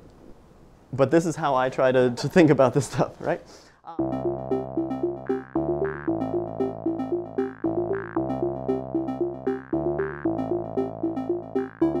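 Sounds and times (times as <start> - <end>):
electronic background music: 4.0 - 12.0.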